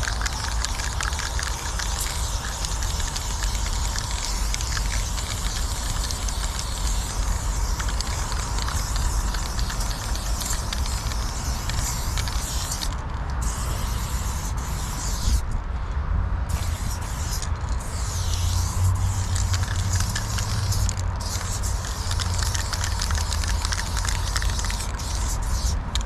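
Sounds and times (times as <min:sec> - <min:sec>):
spray paint can hissing: 0:00.0 - 0:15.6, 0:16.5 - 0:26.0.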